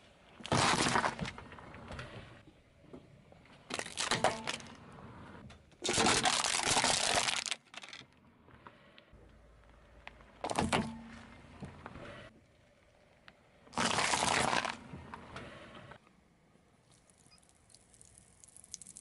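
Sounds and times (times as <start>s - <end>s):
plastic cracking under tyre: 0.4s - 1.4s, 3.7s - 4.8s, 5.8s - 8.2s, 13.7s - 14.8s
drink can crushing: 13.8s - 14.8s.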